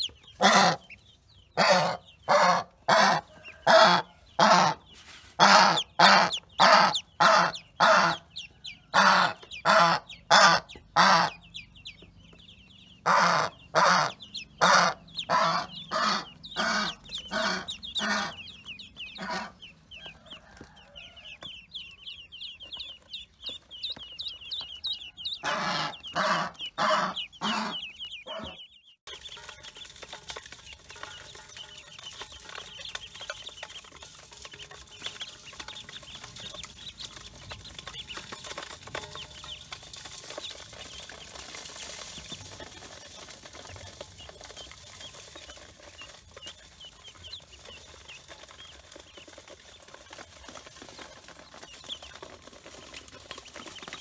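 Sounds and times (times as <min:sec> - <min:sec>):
ducklings peeping: 0:00.0 - 0:54.0.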